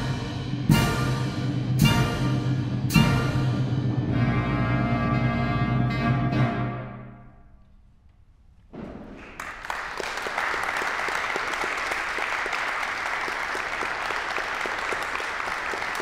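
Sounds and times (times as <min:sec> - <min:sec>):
audience applauding: 0:09.0 - 0:16.0.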